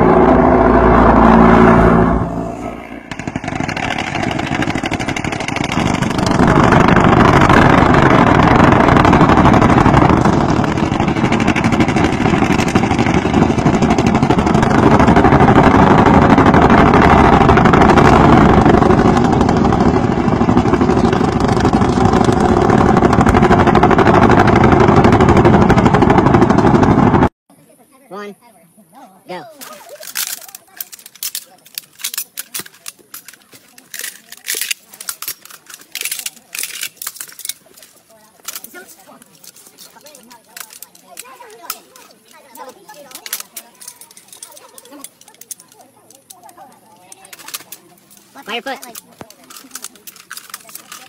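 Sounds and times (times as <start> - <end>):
helicopter noise: 0.0 - 27.3
machine guns firing rapid bursts: 3.1 - 26.9.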